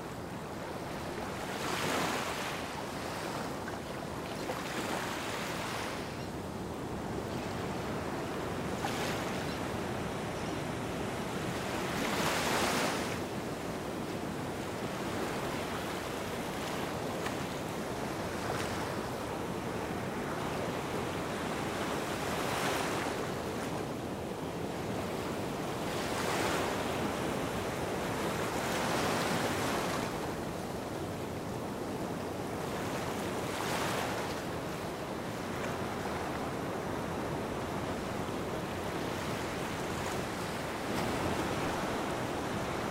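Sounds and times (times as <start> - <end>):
waves washing onto beach: 25.3 - 42.9.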